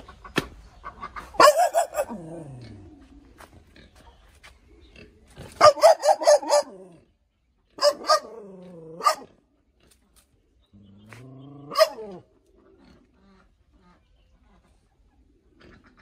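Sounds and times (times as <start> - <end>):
dog barking: 1.4 - 2.2, 5.6 - 7.0, 7.8 - 9.4, 11.7 - 12.2
dog growling: 2.0 - 3.0, 7.8 - 9.3.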